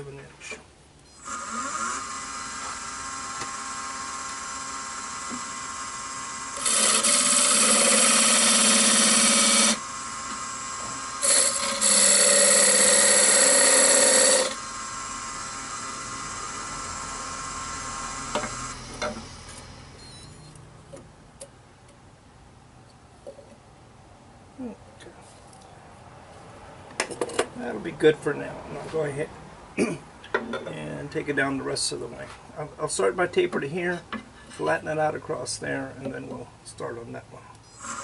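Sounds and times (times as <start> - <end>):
turning tool cutting wood hiss: 1.2 - 20.2, 37.7 - 38.0
wood lathe humming: 1.2 - 20.2, 37.8 - 38.0.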